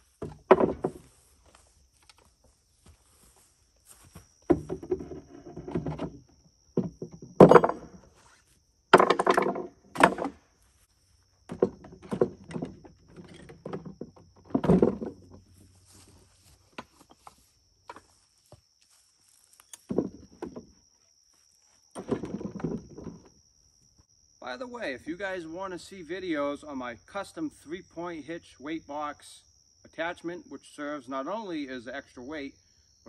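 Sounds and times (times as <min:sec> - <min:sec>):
tools thunking into wooden box: 0:00.2 - 0:01.0, 0:06.8 - 0:08.1, 0:08.9 - 0:10.4.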